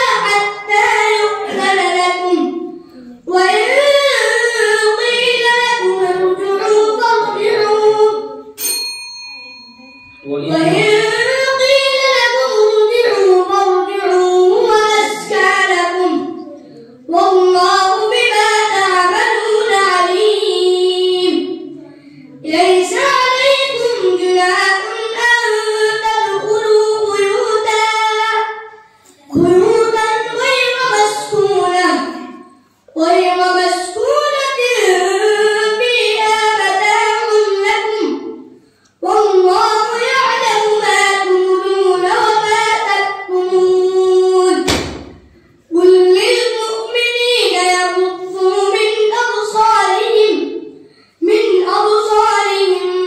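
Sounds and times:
boy chanting melodically: 0:00.0 - 0:08.6, 0:09.7 - 0:53.0.

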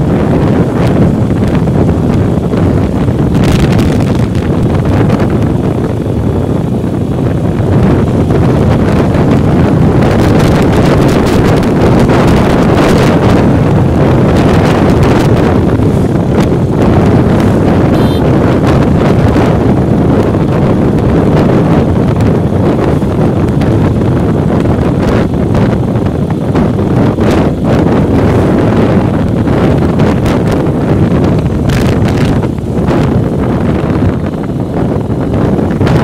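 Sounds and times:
motorcycle running: 0:00.0 - 0:36.0
wind buffeting microphone: 0:00.0 - 0:36.0.

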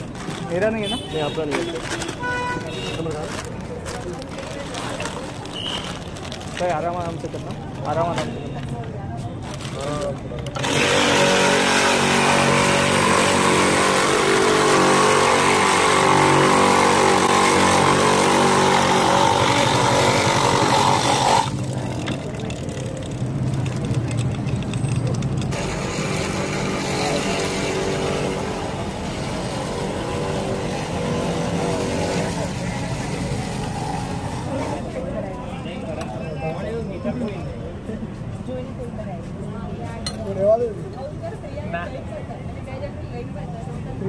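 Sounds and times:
ice crusher grinding ice: 0:09.8 - 0:34.8.

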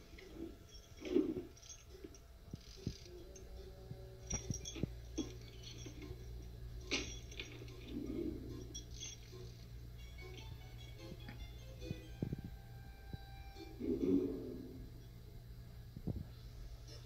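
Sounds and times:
metal chain clinking: 0:00.0 - 0:12.3
steady low hum: 0:00.0 - 0:17.0.

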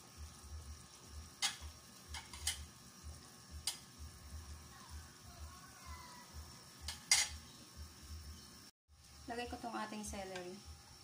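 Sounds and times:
metal ladle clinking on pot: 0:06.9 - 0:07.4.

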